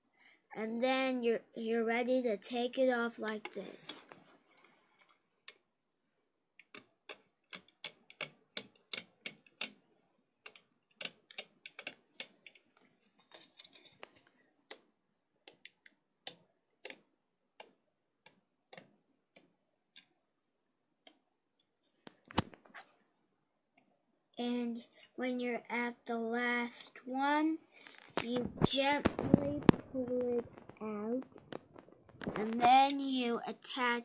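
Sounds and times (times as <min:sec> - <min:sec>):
rubber bands clicking off plastic pegs: 0:06.6 - 0:09.8, 0:10.4 - 0:20.1.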